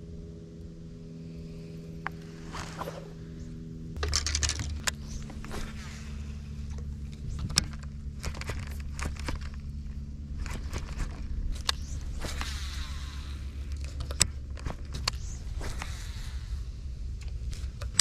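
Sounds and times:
boat motor humming: 0:00.0 - 0:18.0
sharp clicks and knocks: 0:06.7 - 0:09.7, 0:13.7 - 0:15.9.

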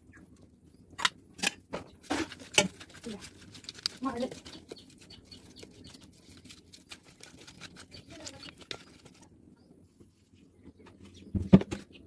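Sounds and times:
wet squishing of fish pieces: 0:02.1 - 0:09.2.

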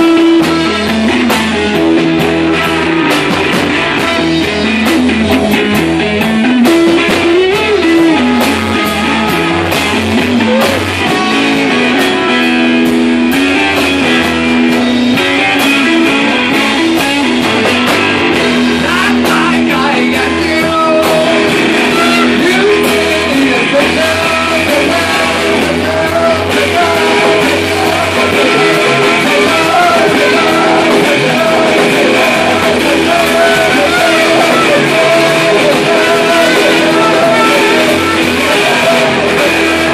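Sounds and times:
person singing: 0:00.0 - 0:39.9
rock band guitars and drums: 0:00.0 - 0:39.9.

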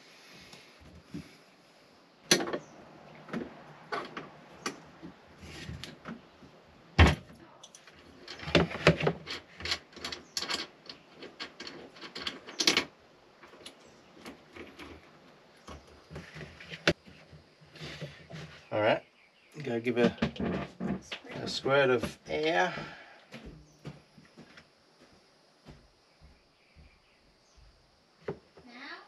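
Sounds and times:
clicks and clatter of handling: 0:07.6 - 0:15.0.

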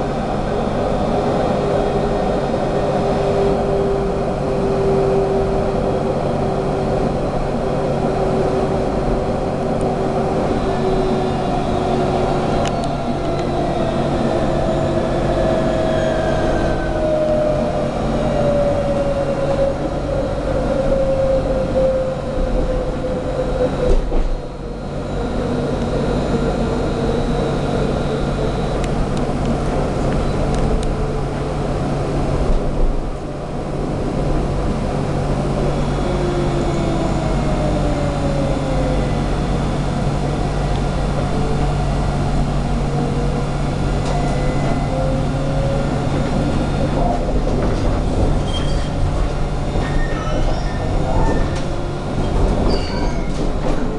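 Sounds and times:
tram rumble and hum: 0:00.0 - 0:53.9.

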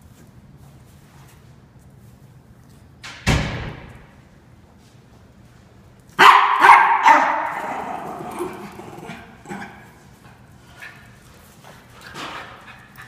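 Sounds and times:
dogs barking: 0:06.2 - 0:09.9.

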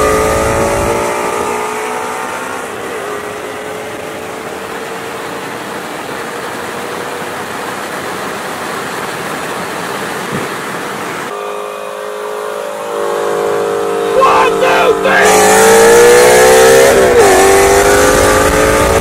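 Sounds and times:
wind and road rush: 0:00.0 - 0:11.4, 0:12.9 - 0:19.0
cars rolling slowly: 0:00.0 - 0:11.5
car engine drone: 0:00.0 - 0:19.0.

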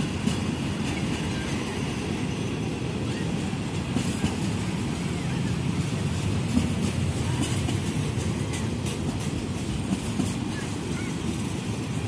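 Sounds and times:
train rumbling by: 0:00.0 - 0:12.0.

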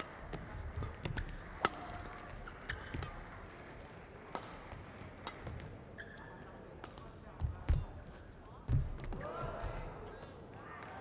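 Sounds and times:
shoes squeaking on court floor: 0:05.9 - 0:06.5.

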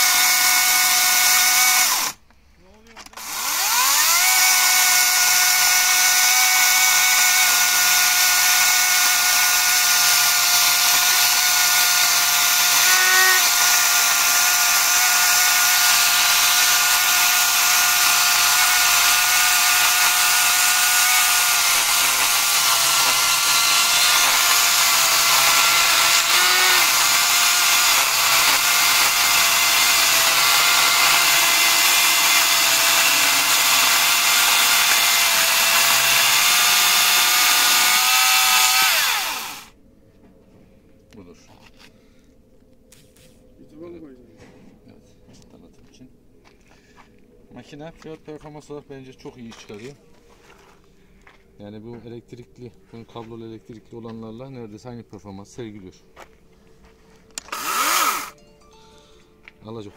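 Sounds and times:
electric chainsaw cutting log: 0:00.0 - 0:02.2, 0:03.1 - 0:39.7, 0:57.4 - 0:58.4.

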